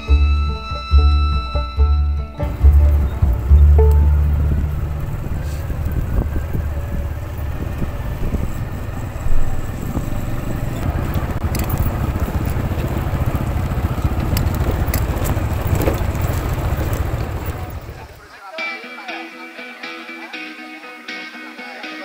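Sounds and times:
scooter engine rumble: 0.0s - 18.6s
tyres rolling over loose stones: 4.2s - 18.2s
sharp clicks: 10.7s - 17.5s.

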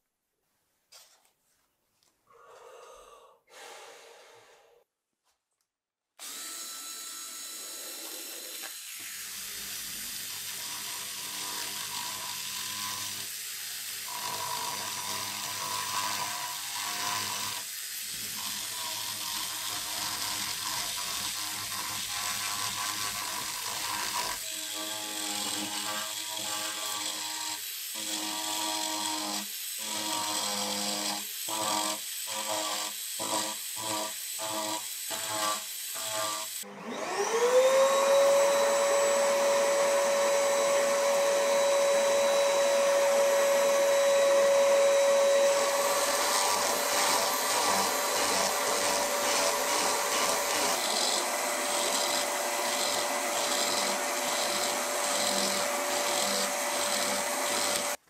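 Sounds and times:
power tool motor running: 22.0s - 58.0s.

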